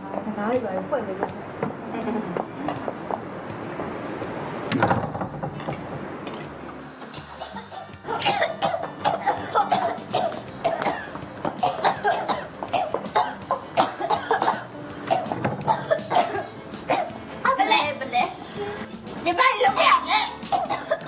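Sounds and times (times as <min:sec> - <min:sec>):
background music: 0:00.0 - 0:21.0
women coughing: 0:07.3 - 0:17.7, 0:20.2 - 0:21.0.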